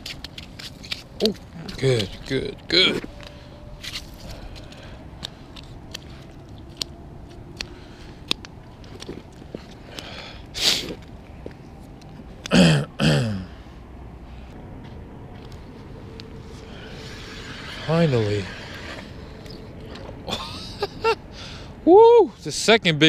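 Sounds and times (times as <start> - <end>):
man making throat noises: 12.4 - 13.6.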